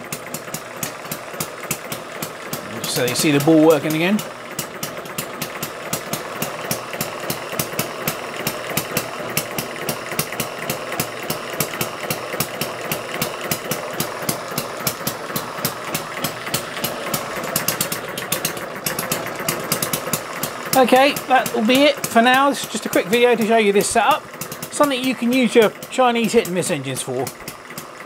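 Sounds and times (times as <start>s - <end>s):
small engine ticking and humming: 0.0s - 28.0s.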